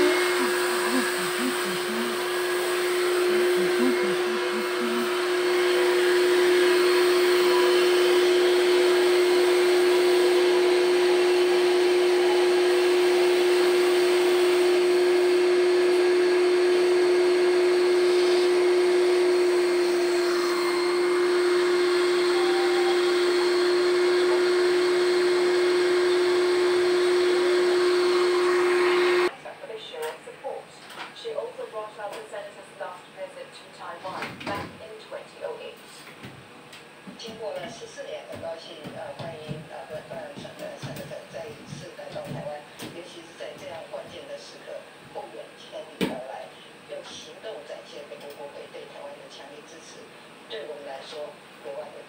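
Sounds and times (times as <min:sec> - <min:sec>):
electric motor humming: 0:00.0 - 0:29.3.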